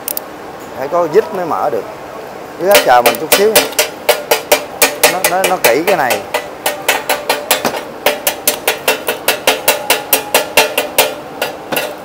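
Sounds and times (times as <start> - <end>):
hammer strikes on metal: 2.6 - 12.0.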